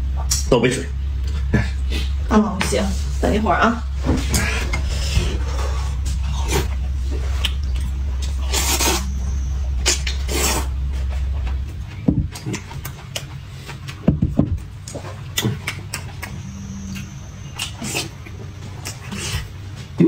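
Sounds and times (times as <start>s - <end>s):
steady low hum: 0.0s - 20.0s
man slurping noodle soup: 8.4s - 9.1s
sharp knocks and clicks: 11.4s - 16.1s.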